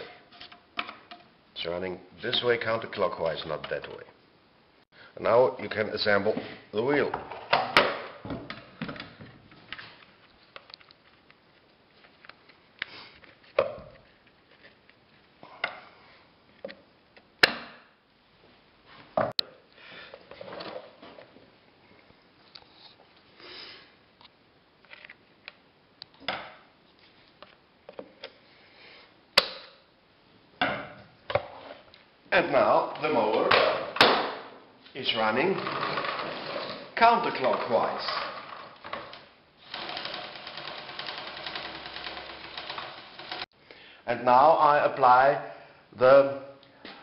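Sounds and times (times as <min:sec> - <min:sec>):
knocks and clicks of metal parts: 0:00.0 - 0:01.3.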